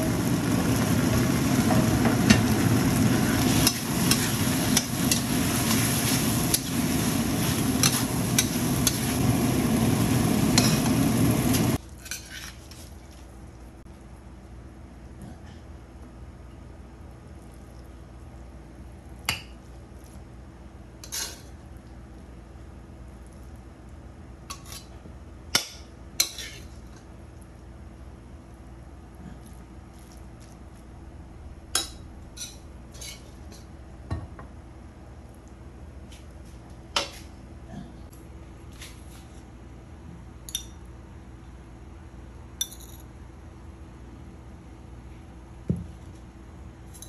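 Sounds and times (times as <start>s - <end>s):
low background hum: 0.0s - 47.0s
spatula scraping metal wok: 32.9s - 33.3s.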